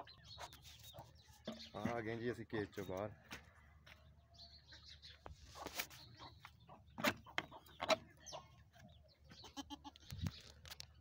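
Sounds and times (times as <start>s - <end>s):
chickens clucking: 0.0s - 3.5s, 5.2s - 11.0s.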